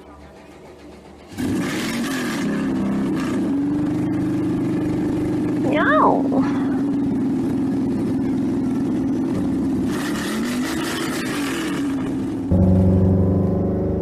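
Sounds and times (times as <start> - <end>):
car engine revving: 0.0 - 14.0
loud deep held tone: 12.5 - 14.0.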